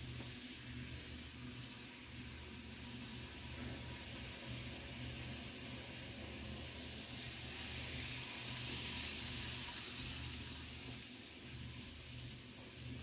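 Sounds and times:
model train wheels hissing on rails: 0:00.0 - 0:13.0
model train motor whir: 0:00.2 - 0:13.0.

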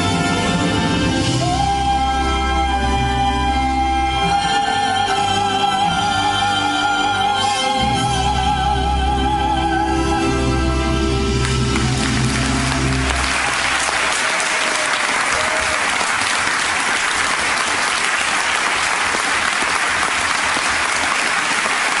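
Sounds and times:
audience applauding: 0:11.3 - 0:22.0.

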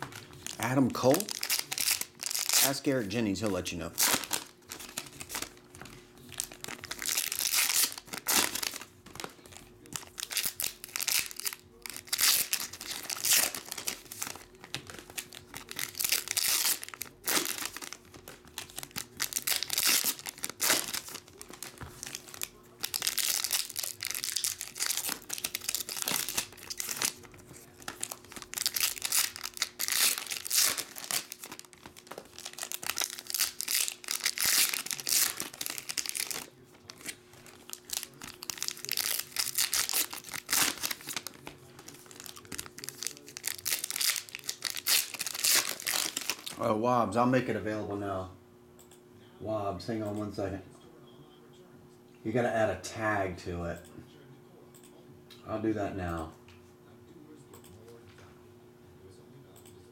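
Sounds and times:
foil wrappers crinkling and tearing: 0:00.0 - 0:46.6.

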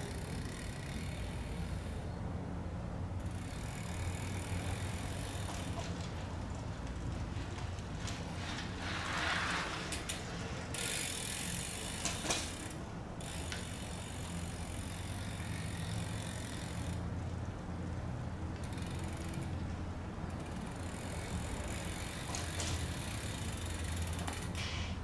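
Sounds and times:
bicycle clicks: 0:00.0 - 0:02.0, 0:03.2 - 0:25.0
bicycle tyres rushing past: 0:03.3 - 0:17.0.

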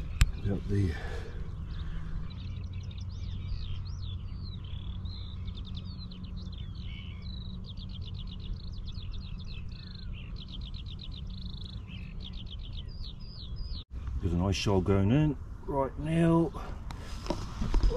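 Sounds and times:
steady low rumble: 0:00.0 - 0:17.0
songbird singing: 0:00.0 - 0:17.9.

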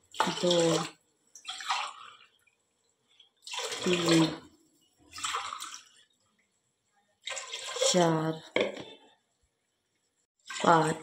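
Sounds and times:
water pouring into a pot: 0:03.3 - 0:04.5, 0:07.2 - 0:08.1.

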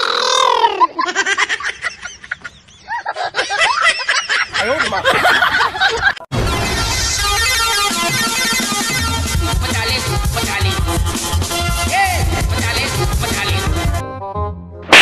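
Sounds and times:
high-pitched giggling and laughter: 0:00.3 - 0:06.2
music: 0:06.4 - 0:15.0.

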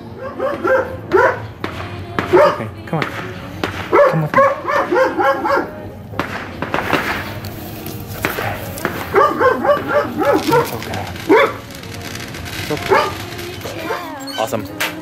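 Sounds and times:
dog barking: 0:00.2 - 0:01.5, 0:02.3 - 0:02.7, 0:03.9 - 0:05.8, 0:08.3 - 0:11.7, 0:12.8 - 0:14.2.

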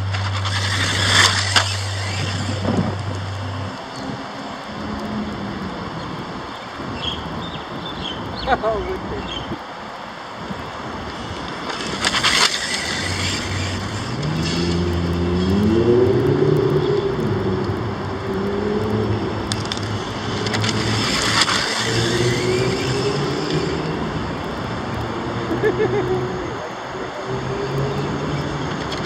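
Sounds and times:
rc car passing on asphalt: 0:00.0 - 0:29.0
droning tone rising in pitch: 0:12.4 - 0:25.3.

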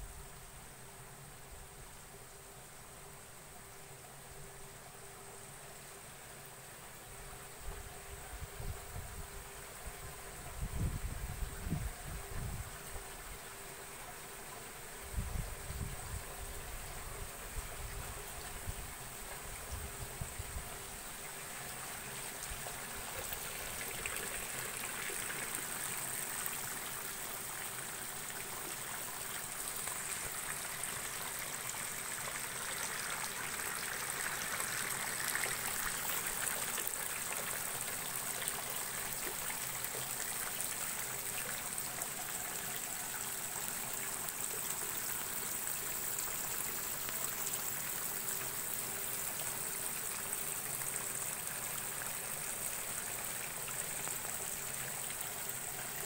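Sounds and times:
water trickling and splashing: 0:16.9 - 0:56.0.

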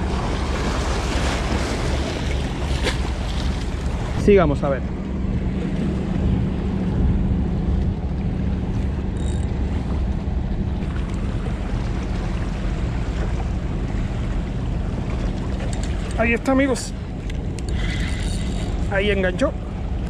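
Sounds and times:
waves washing against rocks: 0:00.0 - 0:04.3
wind buffeting microphone: 0:00.0 - 0:20.0.

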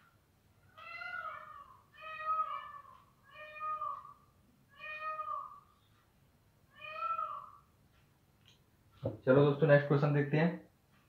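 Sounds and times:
cat meowing: 0:00.7 - 0:05.7, 0:06.7 - 0:07.7.

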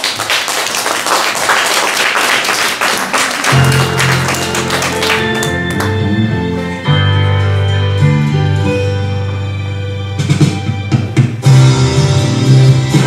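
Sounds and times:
audience applauding: 0:00.0 - 0:06.0
music with held chords: 0:03.5 - 0:13.0.

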